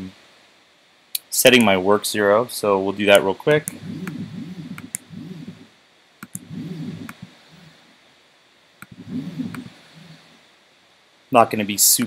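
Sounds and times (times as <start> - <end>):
sharp clicks: 3.6 - 5.6, 6.2 - 7.7, 8.8 - 9.7
stepper motors whining: 3.6 - 7.8, 8.8 - 10.4.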